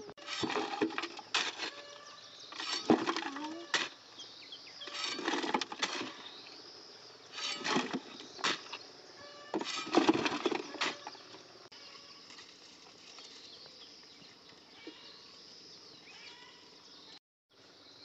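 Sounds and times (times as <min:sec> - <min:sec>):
shovel digging dry soil: 0:00.0 - 0:01.9, 0:02.5 - 0:04.0, 0:04.8 - 0:06.4, 0:07.3 - 0:08.8, 0:09.5 - 0:11.3
soil scooped into metal wheelbarrow: 0:00.2 - 0:04.0, 0:04.8 - 0:06.5, 0:07.3 - 0:08.8, 0:09.4 - 0:11.4.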